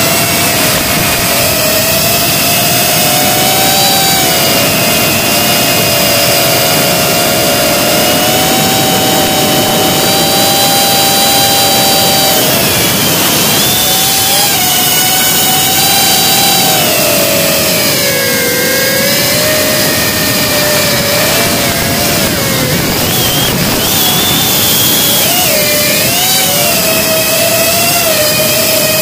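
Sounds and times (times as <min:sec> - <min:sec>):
drone motors and propellers whining: 0:00.0 - 0:29.0.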